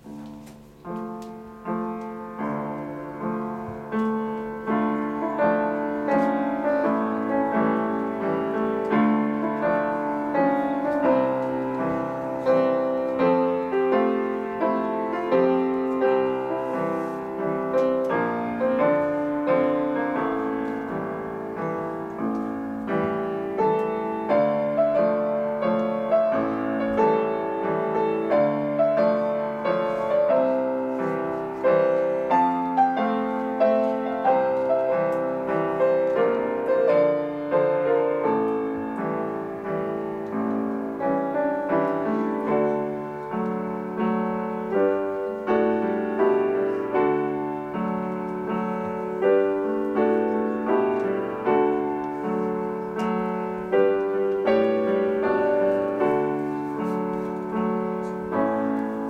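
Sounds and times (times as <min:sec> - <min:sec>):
solo grand piano: 0:00.0 - 0:59.0.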